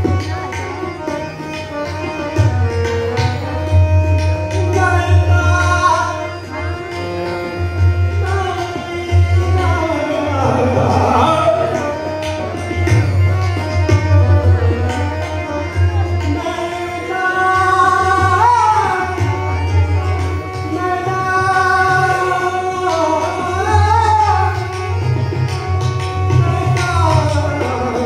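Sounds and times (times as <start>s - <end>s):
harmonium: 0.0s - 28.0s
tabla drumming: 0.0s - 28.0s
tanpura drone: 0.0s - 28.0s
man singing: 8.2s - 12.1s, 16.3s - 19.2s, 20.7s - 24.5s.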